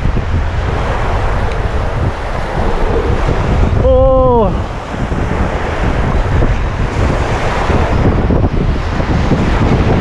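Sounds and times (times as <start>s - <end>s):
surf breaking: 0.0s - 10.0s
wind buffeting microphone: 0.0s - 10.0s
person vocal sound falling in pitch: 3.8s - 4.6s.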